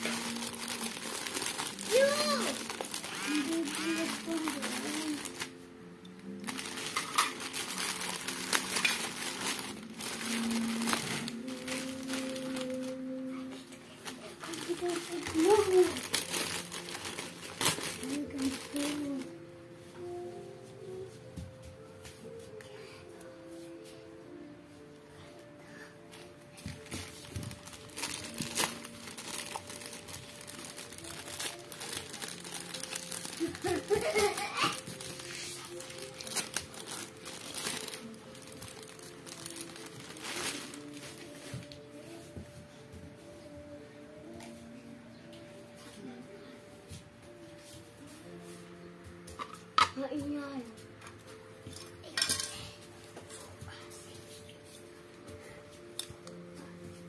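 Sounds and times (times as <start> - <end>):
plastic bags crinkling: 0.0 - 5.6, 6.2 - 19.4, 26.6 - 41.8.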